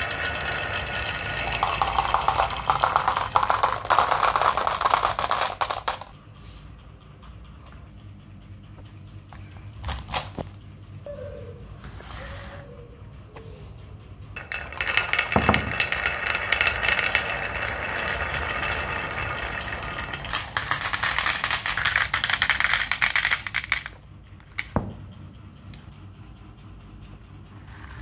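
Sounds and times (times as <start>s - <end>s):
marbles rattling down wooden run: 0.0s - 6.2s, 14.4s - 24.7s.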